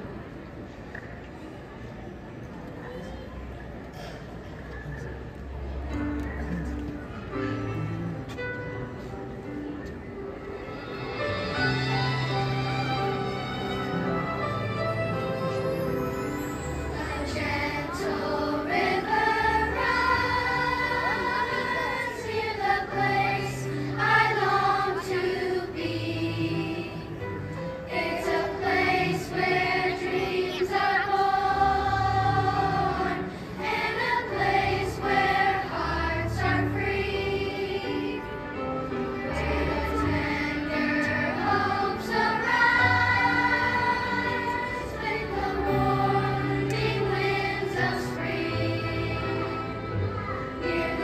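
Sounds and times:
children's choir singing: 0:10.5 - 0:51.0.

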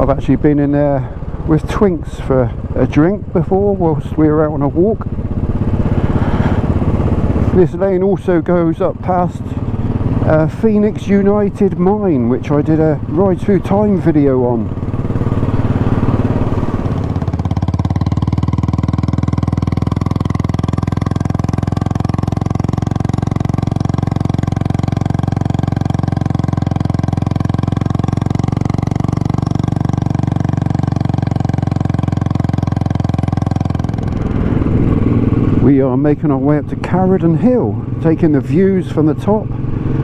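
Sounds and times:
motorcycle engine cruising: 0:00.0 - 0:40.0.

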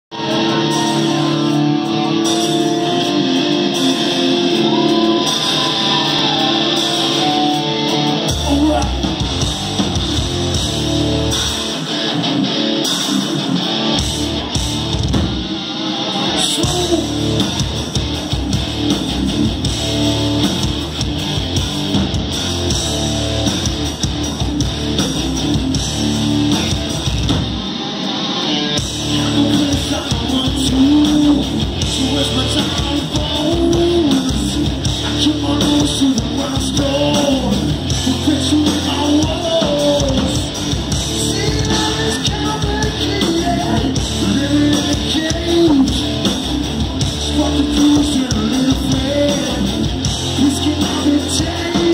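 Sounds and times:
drums and bass: 0:00.0 - 0:51.9
live heavy rock band: 0:00.1 - 0:51.9.

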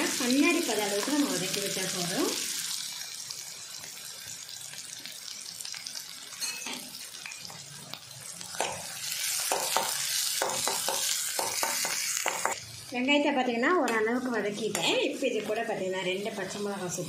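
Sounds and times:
onion sizzling in hot oil: 0:00.0 - 0:17.0.

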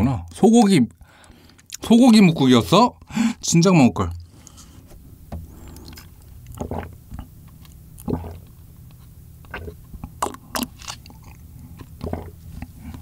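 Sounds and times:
sipping and swallowing broth: 0:05.6 - 0:13.0
wet mouth sounds: 0:05.6 - 0:13.0.

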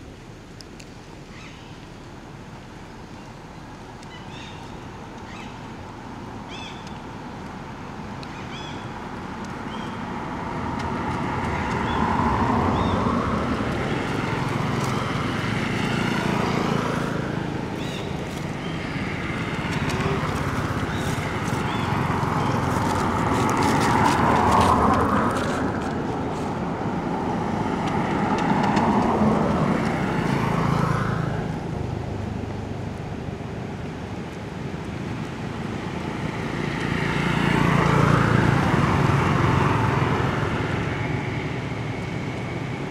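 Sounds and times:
road traffic passing: 0:00.0 - 0:42.9.

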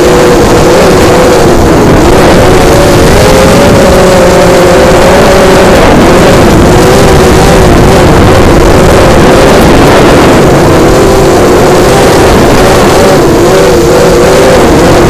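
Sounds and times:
heavy low rumble: 0:00.0 - 0:15.0
quadcopter motors buzzing whine: 0:00.0 - 0:15.0.

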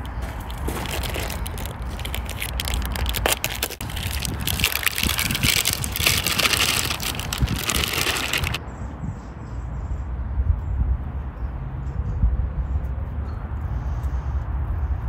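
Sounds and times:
plastic bag crinkling: 0:00.0 - 0:08.6
wind rumble on microphone: 0:00.0 - 0:15.0.

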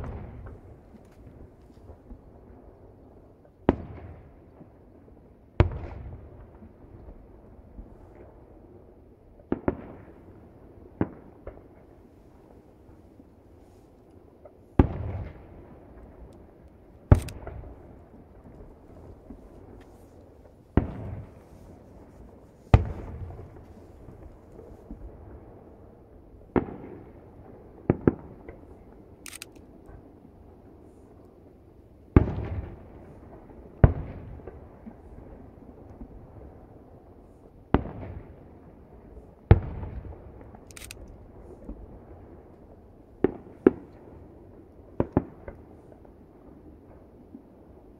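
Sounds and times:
distant firework booms: 0:00.0 - 0:00.8, 0:14.8 - 0:16.3, 0:20.4 - 0:25.5, 0:32.1 - 0:35.4
distant fireworks bangs: 0:00.0 - 0:02.3, 0:14.4 - 0:29.0, 0:32.1 - 0:36.6, 0:43.1 - 0:46.2.

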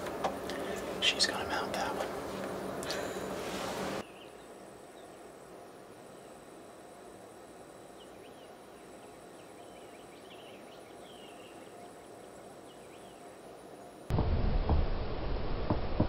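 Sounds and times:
high-pitched insect buzz: 0:04.0 - 0:14.1.

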